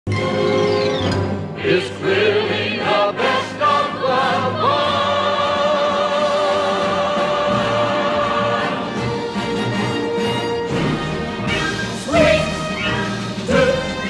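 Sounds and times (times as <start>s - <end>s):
background music: 0.1s - 14.0s
operatic singing voice: 1.6s - 9.2s, 12.0s - 14.0s.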